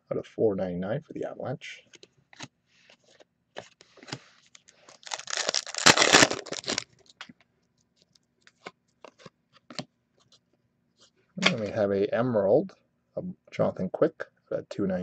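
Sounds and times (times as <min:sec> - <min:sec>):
cards being handled: 0:02.4 - 0:07.3
foil pack tearing: 0:04.9 - 0:06.8.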